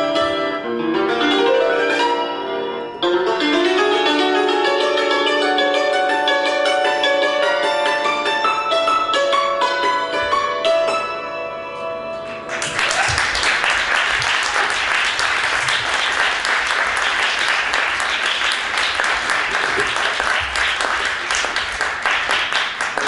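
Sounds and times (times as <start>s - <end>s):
audience applauding: 12.3s - 23.0s.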